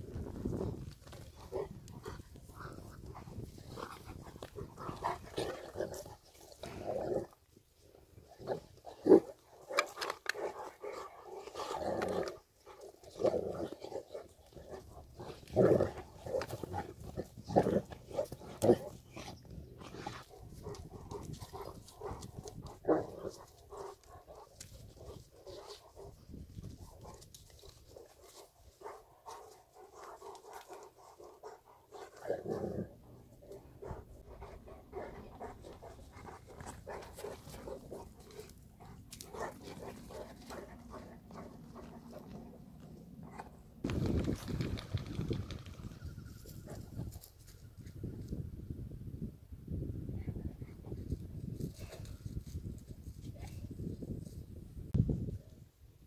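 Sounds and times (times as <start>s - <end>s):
dogs growling: 1.3s - 7.4s, 8.3s - 26.2s, 27.0s - 43.6s.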